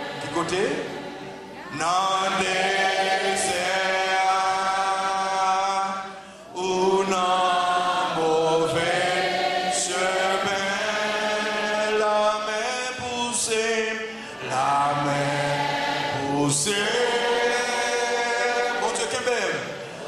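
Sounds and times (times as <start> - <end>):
congregation singing: 0.0 - 20.0
man singing into a microphone: 3.4 - 8.8, 9.8 - 15.4, 16.1 - 19.7.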